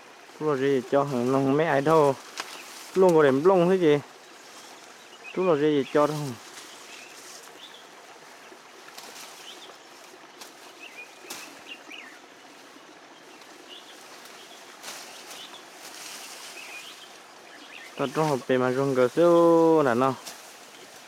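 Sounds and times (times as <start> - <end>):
steady background hiss: 0.0 - 21.0
bird chirps: 10.6 - 18.5.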